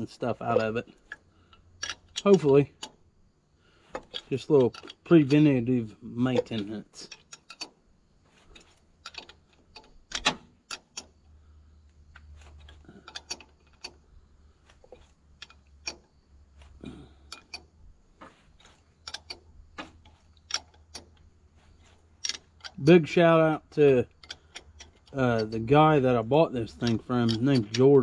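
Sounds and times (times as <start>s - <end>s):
ratchet wrench clicking: 0.5s - 3.0s, 6.4s - 7.8s, 8.5s - 11.2s, 12.2s - 14.1s, 14.9s - 16.2s, 18.6s - 22.9s, 24.0s - 28.0s.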